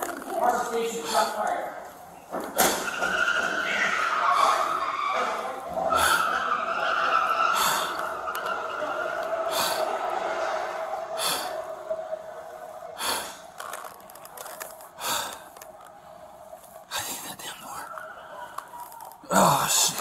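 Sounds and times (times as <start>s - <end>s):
person gasping breaths: 11.2s - 11.7s, 13.0s - 13.8s, 15.0s - 15.6s.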